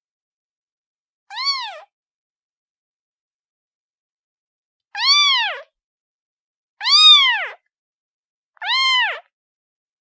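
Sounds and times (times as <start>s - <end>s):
kitten meowing: 1.3s - 1.9s, 5.0s - 5.7s, 6.8s - 7.6s, 8.6s - 9.3s.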